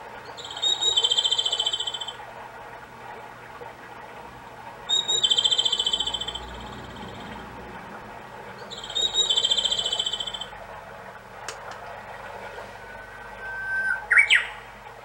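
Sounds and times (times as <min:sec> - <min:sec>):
babbling stream: 0:00.0 - 0:15.0
clock chime of bird song: 0:00.2 - 0:02.2, 0:04.9 - 0:07.4, 0:08.6 - 0:10.5.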